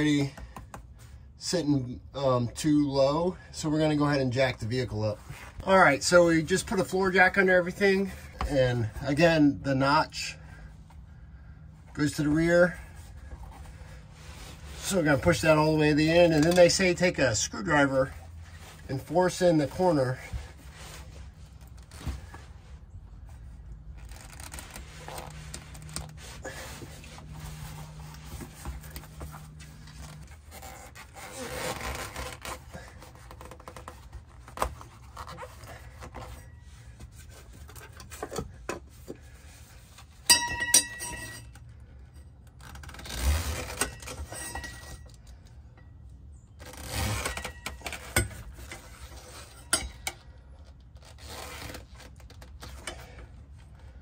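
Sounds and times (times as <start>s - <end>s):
sharp metallic clink: 40.3s - 41.5s
screwdriver scraping on metal: 43.1s - 45.2s, 46.7s - 50.2s.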